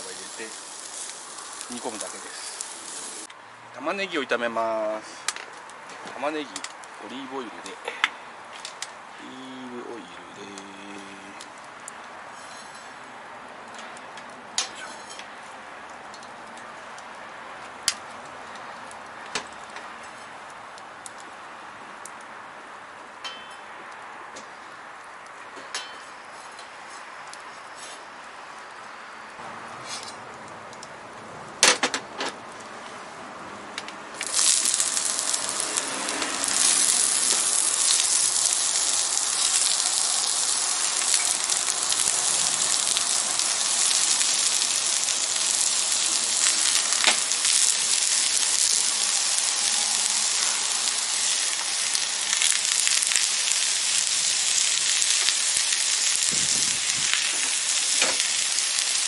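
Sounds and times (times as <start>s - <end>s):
onions sizzling in frying pan: 0.0s - 3.3s, 11.5s - 13.0s, 34.2s - 59.0s.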